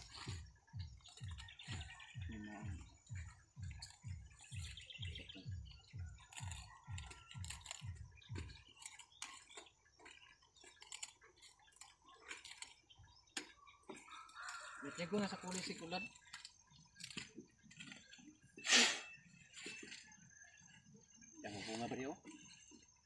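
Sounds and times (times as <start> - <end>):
knife cutting cauliflower leaves: 6.3 - 7.9.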